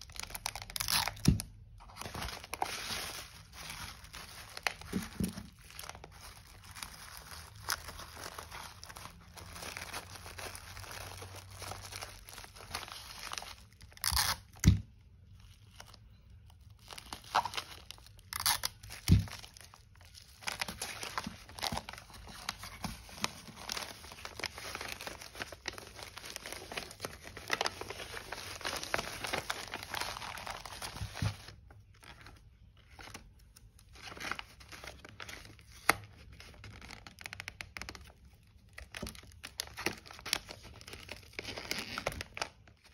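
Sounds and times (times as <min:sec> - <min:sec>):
scissors cutting bubble wrap: 0:00.0 - 0:06.0, 0:11.6 - 0:14.8, 0:17.1 - 0:19.7
bubble wrap crinkling: 0:00.0 - 0:42.9.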